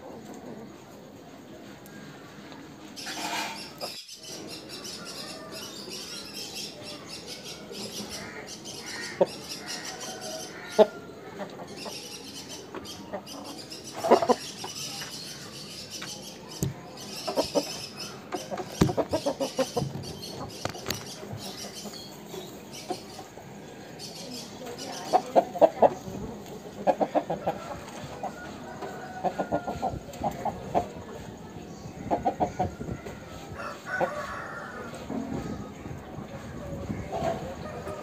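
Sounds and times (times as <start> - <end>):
rooster clucking: 7.9 - 14.6, 16.8 - 23.3, 24.9 - 30.9.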